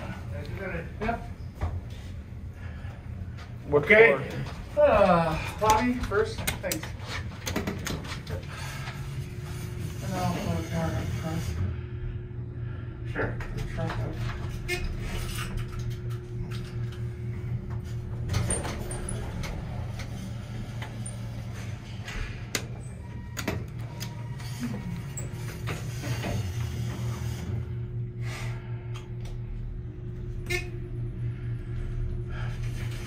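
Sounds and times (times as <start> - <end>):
elevator hum: 0.0 - 33.0
elevator doors sliding: 13.5 - 28.3.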